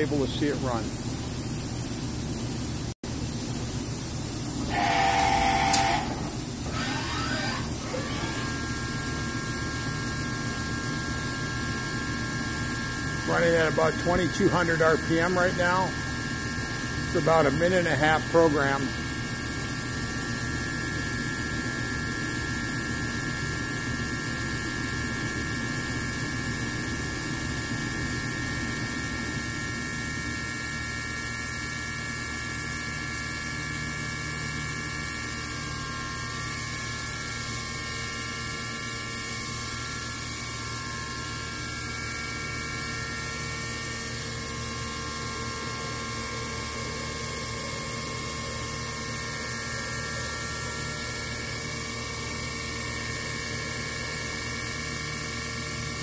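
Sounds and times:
machine hum: 0:03.8 - 0:10.8
machine spindle whine: 0:04.4 - 0:15.2.

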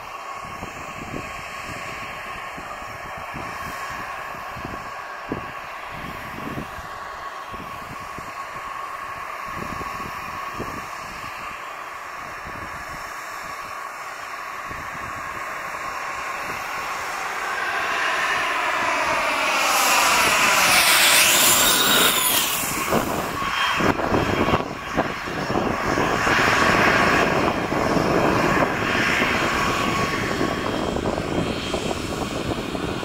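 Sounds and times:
distant jet engine whine: 0:00.0 - 0:33.0.

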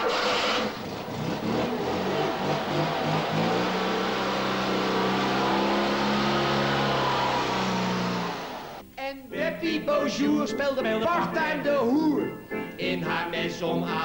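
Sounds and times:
small car engine revving: 0:00.0 - 0:08.8.

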